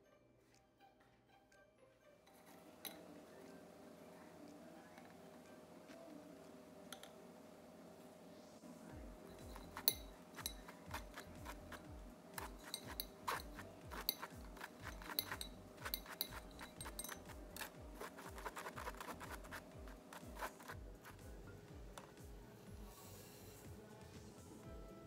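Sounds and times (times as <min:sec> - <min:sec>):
whisk scraping in metal sieve: 0:09.3 - 0:21.2.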